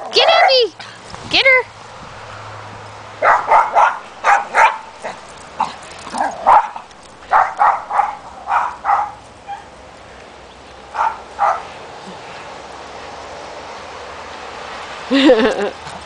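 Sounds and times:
dog barking in play: 3.2s - 9.7s, 10.9s - 11.7s.

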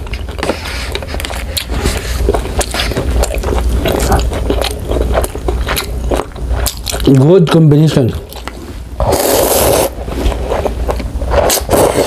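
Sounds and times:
close chewing of food: 0.0s - 12.0s
low steady hum: 0.0s - 12.0s.

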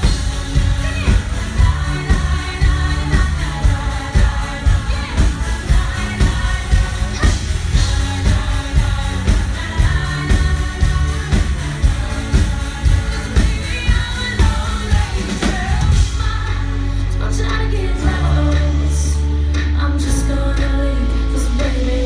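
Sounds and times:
drums beating: 0.0s - 16.8s
live pop-rock band: 0.0s - 22.0s
woman singing: 0.0s - 22.0s.

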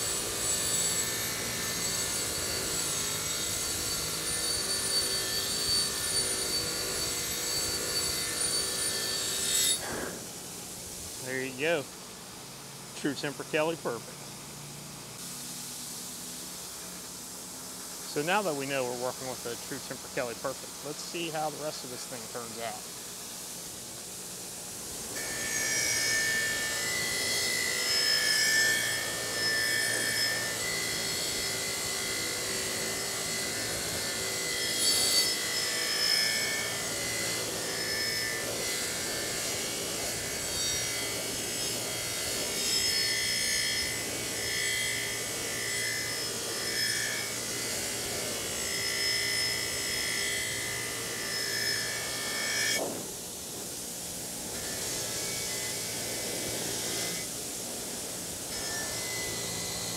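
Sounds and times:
wire wheel scouring metal: 0.0s - 9.9s, 25.2s - 52.6s.

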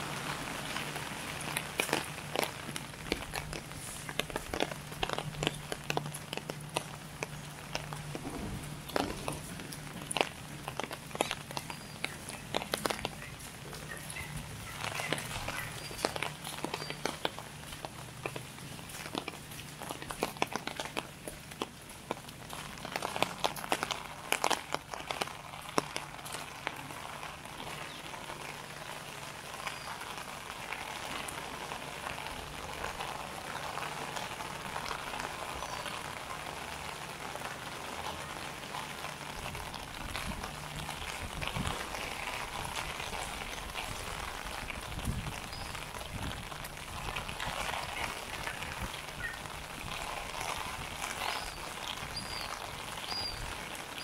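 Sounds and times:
rain falling: 0.0s - 54.0s
drip ticks: 1.5s - 8.2s, 8.9s - 26.8s
low rumble: 8.1s - 10.0s
bird chirps: 52.2s - 53.5s.

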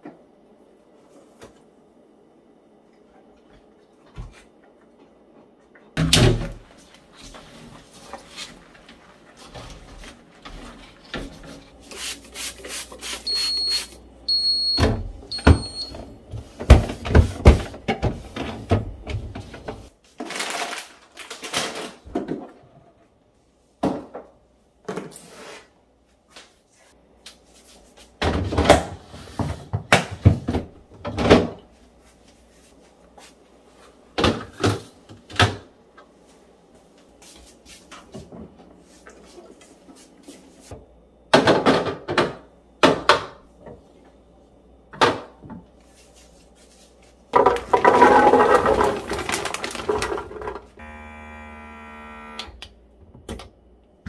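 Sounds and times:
short high beeps: 13.3s - 14.8s
plastic boxes clattering: 47.4s - 50.8s.

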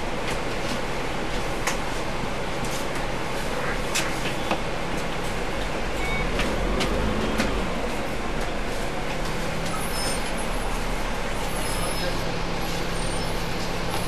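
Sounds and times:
bus diesel engine idling: 0.0s - 14.0s.

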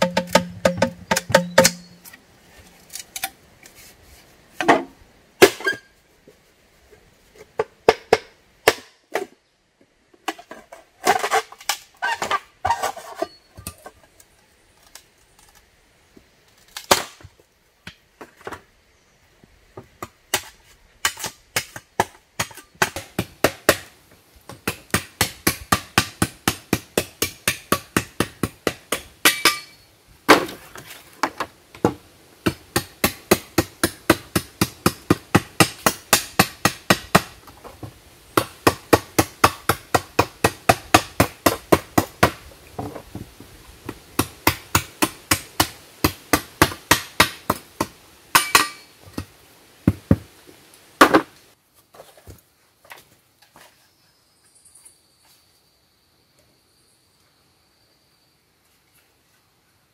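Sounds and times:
hollow knocks of bamboo poles: 0.0s - 2.2s, 4.6s - 5.9s, 7.4s - 9.4s, 19.7s - 29.7s, 30.3s - 50.3s
shovel chopping bamboo: 0.0s - 2.2s, 4.6s - 5.9s, 7.8s - 9.3s, 10.3s - 13.9s, 16.7s - 17.2s, 20.0s - 23.9s, 24.5s - 37.6s, 38.4s - 42.4s, 44.2s - 49.3s.

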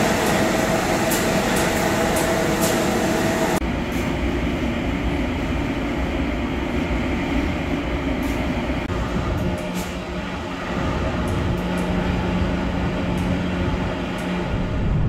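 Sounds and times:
truck engine and road drone: 0.0s - 15.0s.

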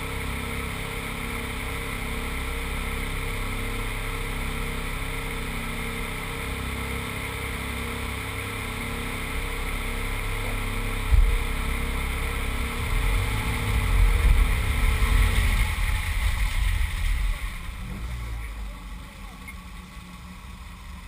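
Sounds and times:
car engine idling: 0.0s - 21.0s
low thump: 11.1s - 11.6s.

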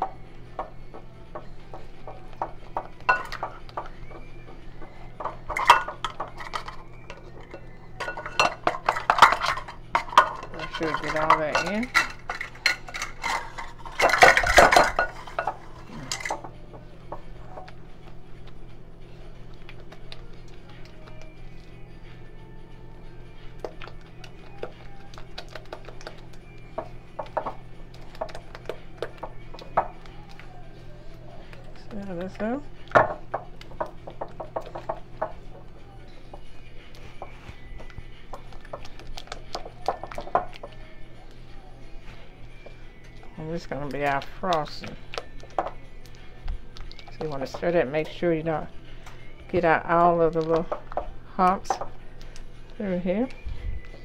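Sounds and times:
plastic cups clinking on glass: 1.7s - 4.3s, 5.2s - 16.6s, 39.5s - 40.7s
spatula scraping glass bowl: 5.5s - 16.4s.

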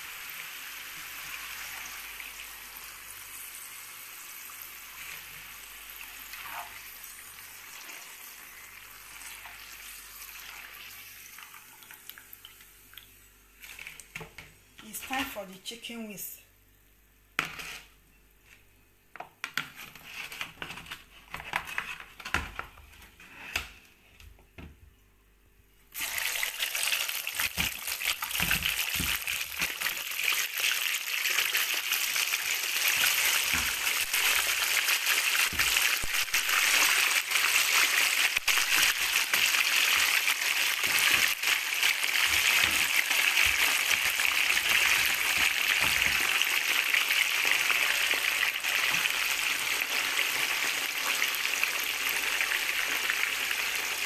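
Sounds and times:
chicken deep-frying sizzle: 0.0s - 14.2s, 25.9s - 54.0s.

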